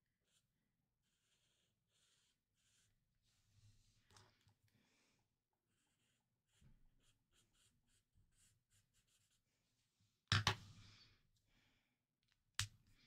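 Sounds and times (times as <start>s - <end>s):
marker rubbing on paper: 0.2s - 4.0s, 5.7s - 9.9s.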